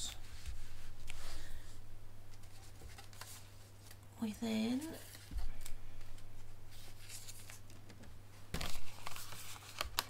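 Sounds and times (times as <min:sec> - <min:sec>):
paper rustling: 0:02.3 - 0:04.0, 0:04.9 - 0:08.0, 0:08.6 - 0:10.0.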